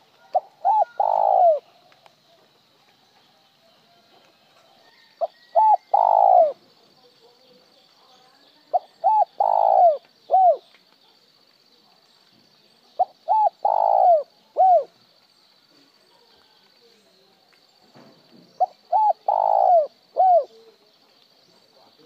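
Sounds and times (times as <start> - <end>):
dove cooing: 0.0 - 1.7, 5.2 - 6.6, 8.7 - 10.6, 13.0 - 14.9, 18.6 - 20.7.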